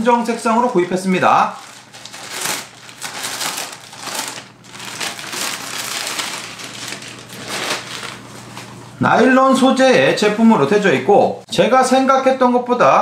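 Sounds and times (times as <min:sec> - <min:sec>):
plastic bag crinkling: 0:00.1 - 0:08.8.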